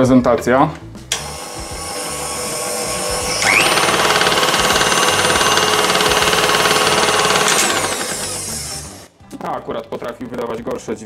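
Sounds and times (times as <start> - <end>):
mixer motor running: 1.1 - 9.1
rising whine: 1.2 - 9.1
harsh gear rattle: 3.2 - 9.1.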